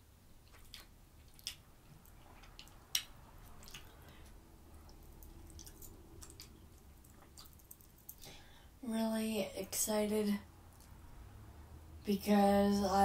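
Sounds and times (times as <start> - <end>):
person chewing food: 0.3 - 8.5.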